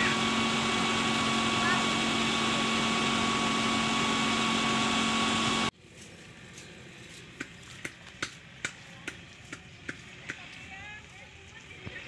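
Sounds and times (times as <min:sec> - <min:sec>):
engine droning: 0:00.0 - 0:12.0
footsteps on paved path: 0:05.7 - 0:12.0.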